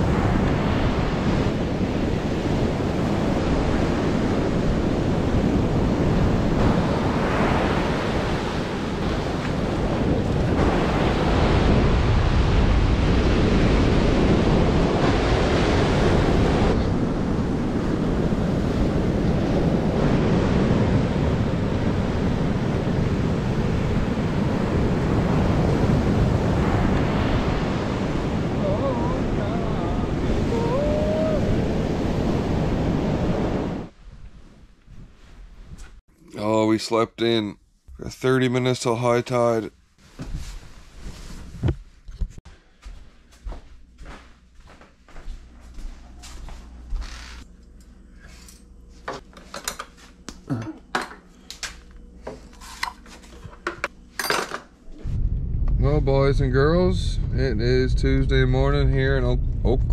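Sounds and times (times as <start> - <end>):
ocean surf breaking: 0.0 - 33.9.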